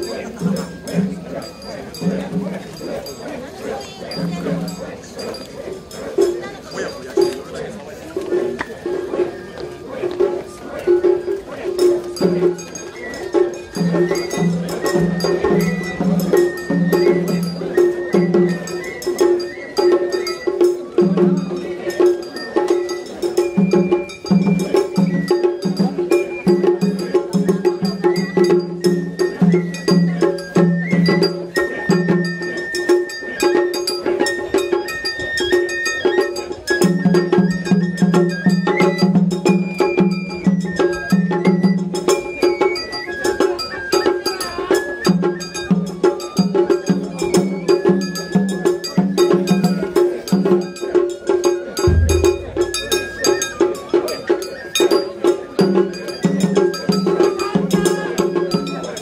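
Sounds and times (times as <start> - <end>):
clacking metal and wood percussion: 0.0 - 59.0
high wandering flute melody: 8.6 - 55.6
deep low drum stroke: 51.8 - 53.8.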